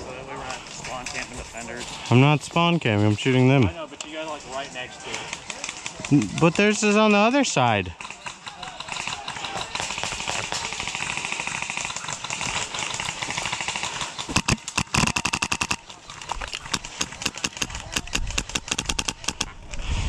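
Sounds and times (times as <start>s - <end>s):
airsoft guns firing full-auto: 4.4s - 19.5s.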